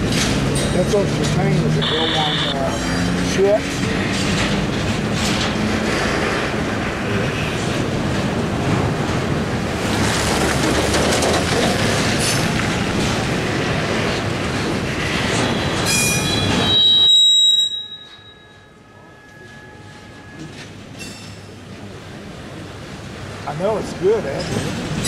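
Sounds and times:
train wheels rumbling on rail: 0:00.0 - 0:17.2, 0:18.0 - 0:25.0
wheel squeal: 0:15.2 - 0:20.7.

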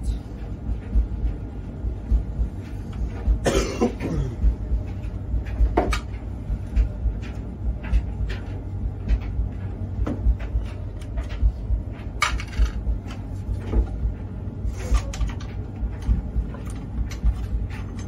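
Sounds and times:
cough-like burst: 0:03.4 - 0:04.4.

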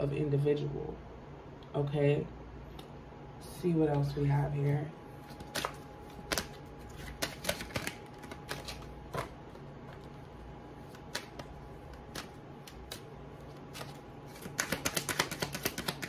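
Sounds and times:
cards being shuffled: 0:05.2 - 0:16.0.

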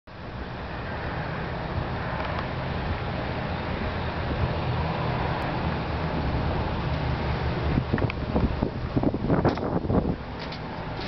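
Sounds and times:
wind on microphone: 0:01.6 - 0:11.0.

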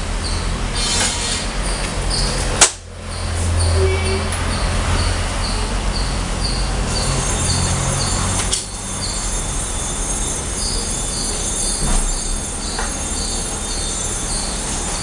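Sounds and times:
high squealing tones: 0:03.1 - 0:15.0
train rushing rumble: 0:03.2 - 0:15.0.

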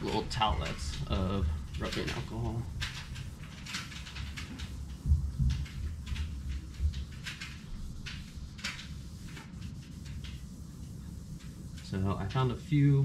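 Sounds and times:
wipe rubbing on car hood: 0:01.8 - 0:12.1
dull thumps: 0:04.7 - 0:07.2.

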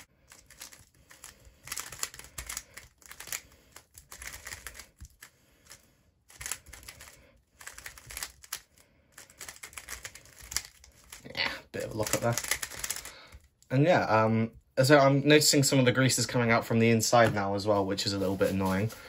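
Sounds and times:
puzzle cube plastic clicking: 0:00.2 - 0:11.2, 0:11.9 - 0:13.7.

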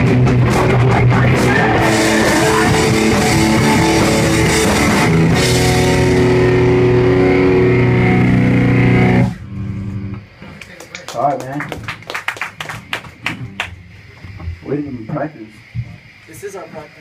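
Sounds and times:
live rock band playing: 0:00.0 - 0:10.2.

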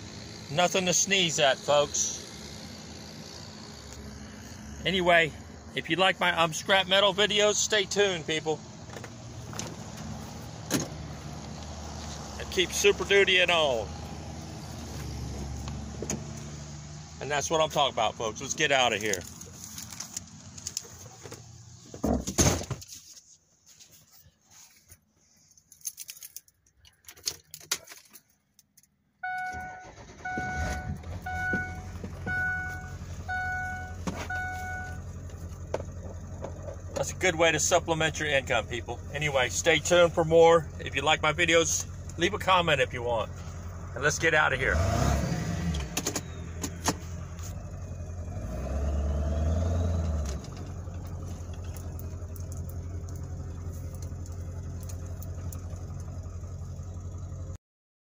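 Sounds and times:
truck engine rumbling: 0:00.0 - 0:22.7, 0:29.2 - 0:57.6
clicks and rattles: 0:25.6 - 0:29.0
dashboard warning chime: 0:29.2 - 0:35.0.

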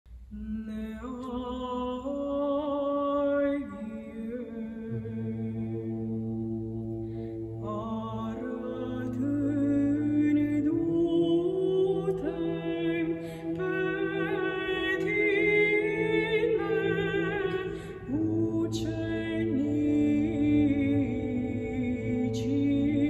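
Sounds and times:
woman chanting: 0:00.3 - 0:05.8, 0:07.6 - 0:23.0
steady low drone note: 0:04.8 - 0:23.0.

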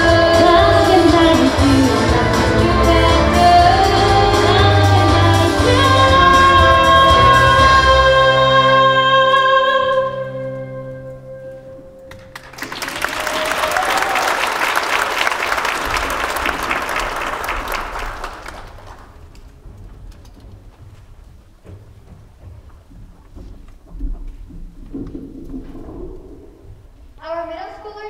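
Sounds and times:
song chord with voices and instruments: 0:00.0 - 0:12.4
audience applauding: 0:12.1 - 0:19.6.

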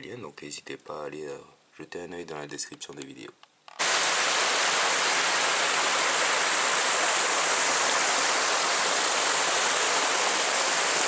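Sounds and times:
stream water rushing: 0:03.8 - 0:11.0.

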